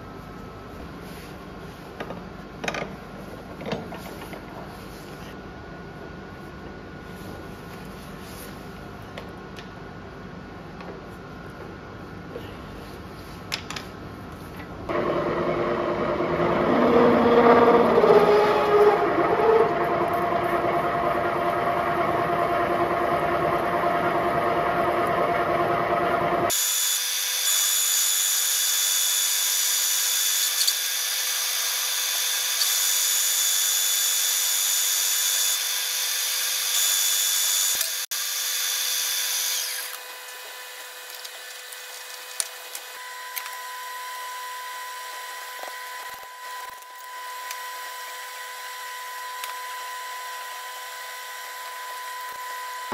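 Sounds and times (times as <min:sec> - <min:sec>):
constant whine: 0:14.9 - 0:26.5
milling machine cutting steel: 0:14.9 - 0:28.0.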